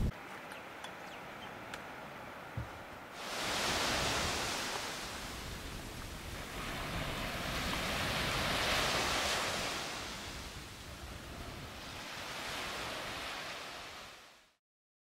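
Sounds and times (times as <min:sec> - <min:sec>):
small waves breaking on a beach: 0:00.1 - 0:14.6
wind rumbling on microphone: 0:02.6 - 0:13.6.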